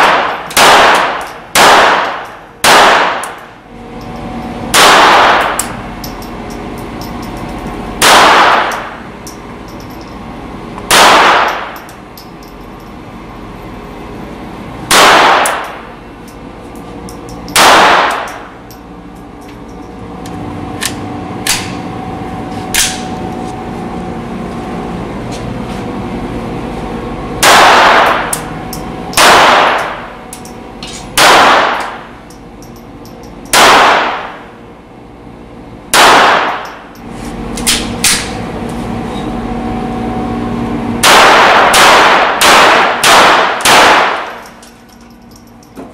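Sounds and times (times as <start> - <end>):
pistol shots with echo: 0.0 - 3.4, 4.7 - 5.6, 8.0 - 8.9, 10.9 - 11.7, 14.9 - 15.8, 17.6 - 18.4, 27.4 - 28.3, 29.2 - 30.0, 31.2 - 32.0, 33.5 - 34.4, 35.9 - 36.7, 41.0 - 44.4
steady hum: 0.0 - 45.9.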